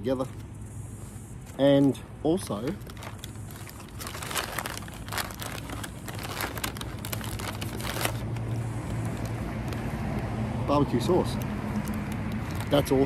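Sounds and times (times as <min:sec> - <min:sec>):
paper bag crinkling: 0:01.8 - 0:09.8, 0:11.6 - 0:13.0.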